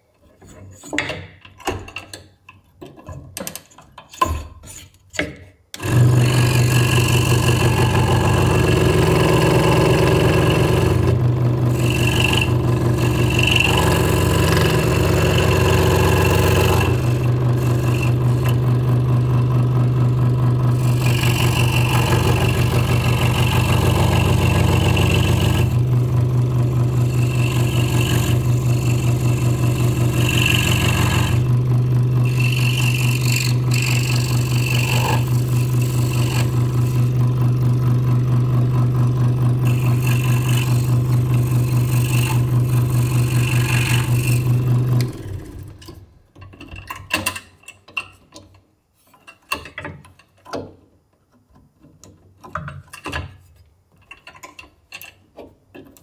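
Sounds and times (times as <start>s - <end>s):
scroll saw cutting wood: 5.8s - 46.0s.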